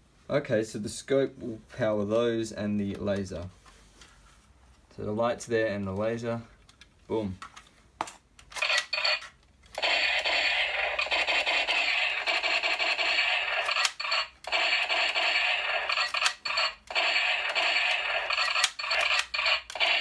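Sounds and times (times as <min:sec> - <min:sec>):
toy gun rapid-fire sound effect: 0:08.6 - 0:20.0.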